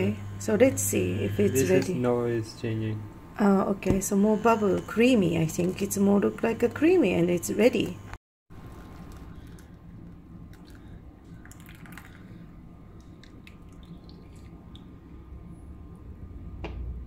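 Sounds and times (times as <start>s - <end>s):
low steady hum: 0.0s - 17.0s
tea pouring through strainer: 8.6s - 15.1s
tea dripping from strainer: 10.4s - 15.1s.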